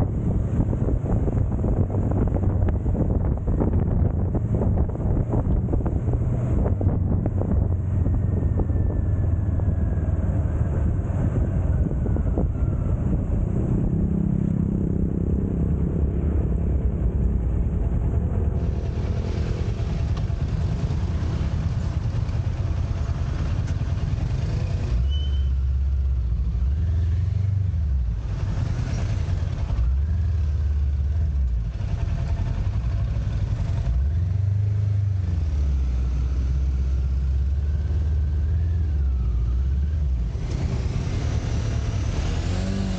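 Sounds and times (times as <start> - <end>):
wind noise on microphone: 0.0 - 25.5
motorcycle engine running: 0.0 - 26.8, 27.8 - 34.7.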